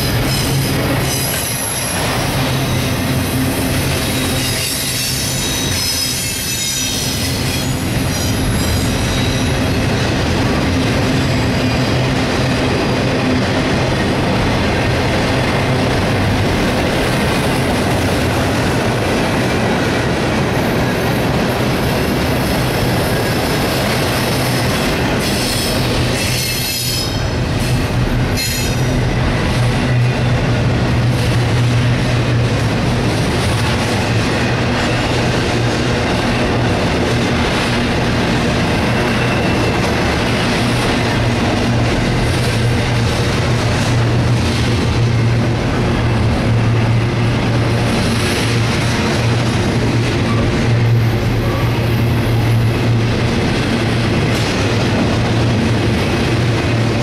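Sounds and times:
train wheels clattering on rail: 0.0s - 57.0s
high-pitched wheel squeal: 4.2s - 9.7s.

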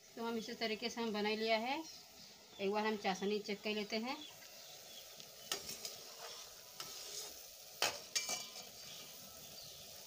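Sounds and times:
syrup bubbling in a pot: 0.0s - 10.0s
metal spatula scraping a pot: 5.4s - 9.2s.

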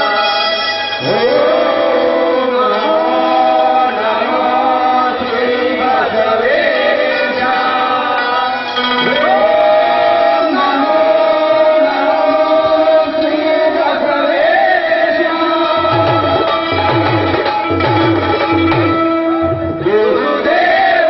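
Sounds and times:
voices singing a slow chant: 1.0s - 16.0s.

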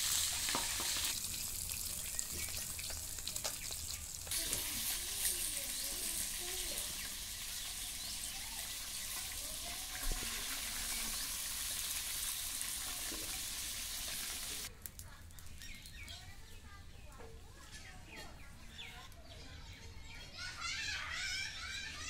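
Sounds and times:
fish sizzling in hot oil: 0.0s - 16.1s
birds chirping: 1.8s - 22.0s.

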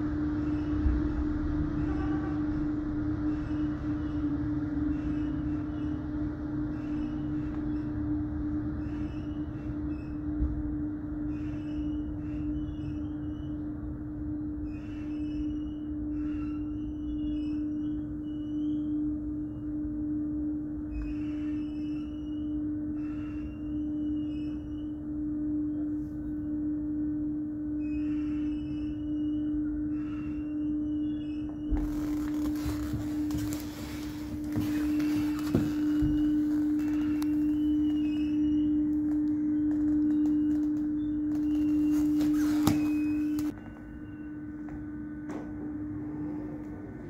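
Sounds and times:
tramway drive machinery humming: 0.0s - 47.0s
high-pitched squeaks: 30.0s - 44.3s.

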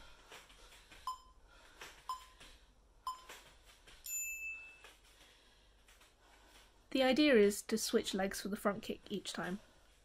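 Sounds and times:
timer beeps: 1.1s - 1.4s, 2.1s - 2.4s, 3.1s - 3.3s.

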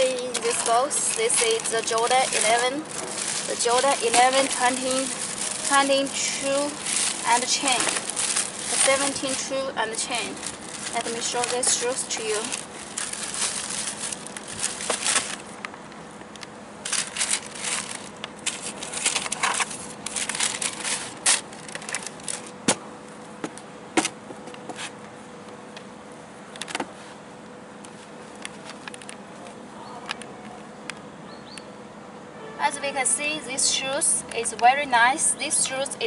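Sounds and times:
plastic bag crinkling: 0.0s - 15.6s, 16.8s - 22.6s
faint steady hum: 0.0s - 36.0s.

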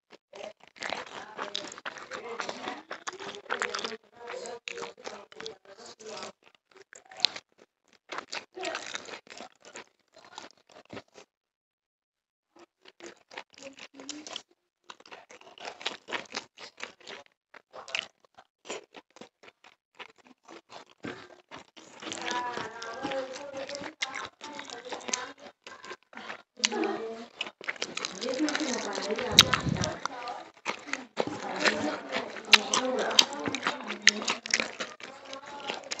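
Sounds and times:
person chewing food: 0.1s - 11.3s, 12.6s - 36.0s
fingers working rice on leaf: 27.6s - 36.0s.

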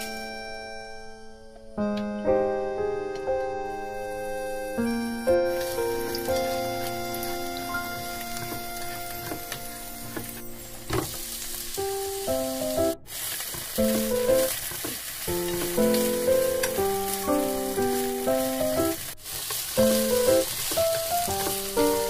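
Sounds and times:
light background melody: 0.0s - 13.0s, 13.8s - 14.6s, 15.3s - 19.2s, 19.8s - 22.0s
garlic and onion sizzling in oil: 3.9s - 22.0s
chopsticks stirring in pan: 5.5s - 22.0s.

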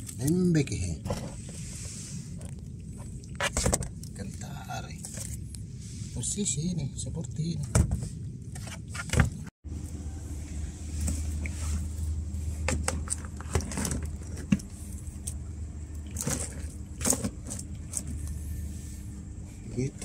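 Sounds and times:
low motor hum: 9.2s - 20.0s.

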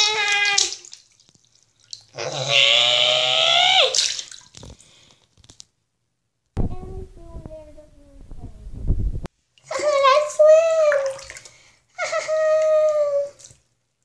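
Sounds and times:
water sloshing in a sink: 0.0s - 2.2s, 3.9s - 5.0s, 9.7s - 13.7s
high-pitched vocal squeal: 2.2s - 4.0s.

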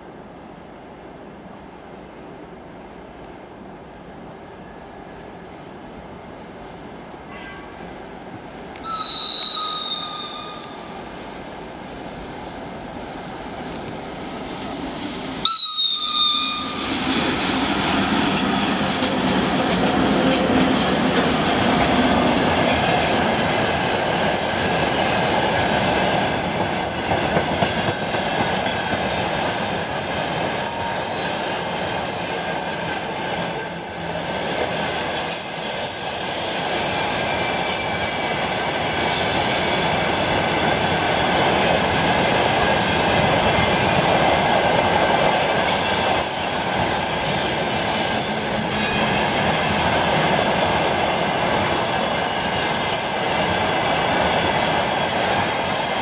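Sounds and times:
train wheels rumbling on rails: 0.0s - 56.0s
locomotive horn blasts: 7.3s - 7.8s
wheel squeal: 45.3s - 49.0s.

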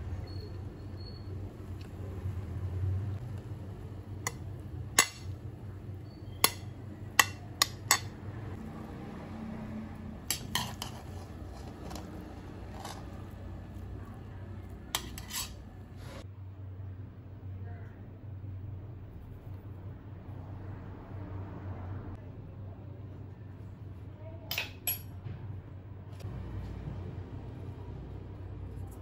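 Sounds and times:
metal spoon clinking on pan: 4.2s - 5.4s, 6.1s - 8.2s, 10.2s - 13.3s, 14.9s - 15.6s, 24.5s - 25.1s.

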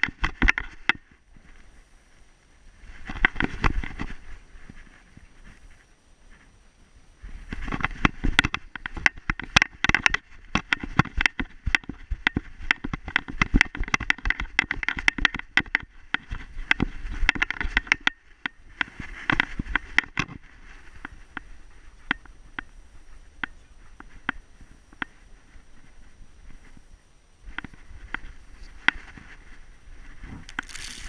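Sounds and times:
footfalls crunching in snow: 30.4s - 31.0s.

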